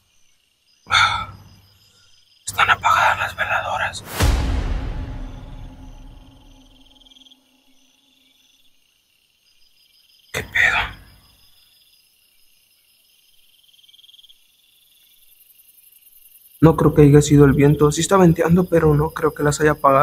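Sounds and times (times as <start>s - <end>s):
night insects trilling: 0.0s - 20.0s
sudden rush of noise: 4.0s - 7.2s.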